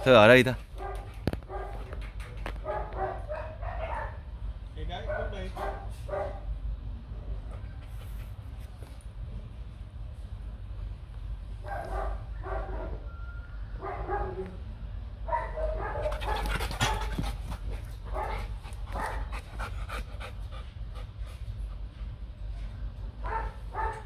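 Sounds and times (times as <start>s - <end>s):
dog panting: 7.4s - 8.8s, 15.8s - 22.0s.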